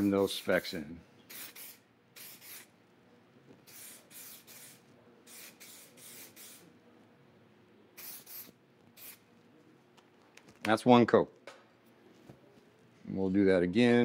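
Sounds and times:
aerosol spray hissing bursts: 1.3 - 2.7, 3.7 - 6.7, 8.0 - 9.2.

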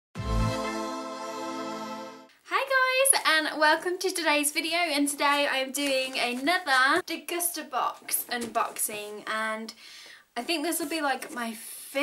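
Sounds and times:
intro music chord: 0.2 - 2.3.

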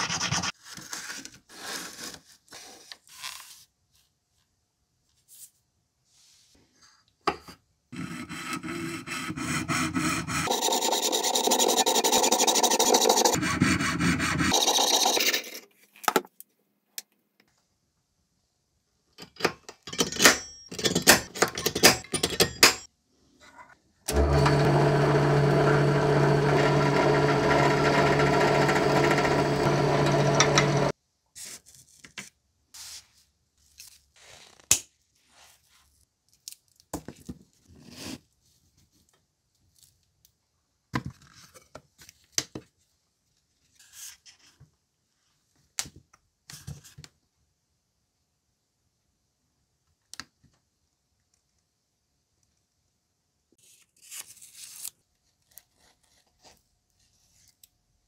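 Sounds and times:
small electric drill running: 10.1 - 13.5, 24.1 - 30.9.

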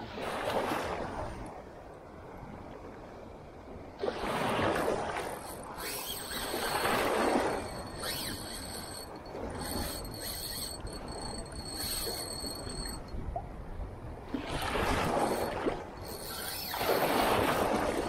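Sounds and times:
thin high whine: 5.4 - 13.2, 15.0 - 17.3.

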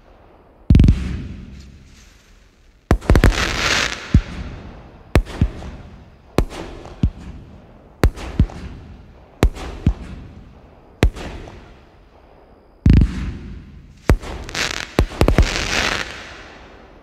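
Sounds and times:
firework cake volley: 0.0 - 17.0
firework launch bangs: 0.7 - 2.2, 2.9 - 11.8, 12.9 - 16.7
firework crackling hiss: 1.0 - 7.4, 13.0 - 17.0.

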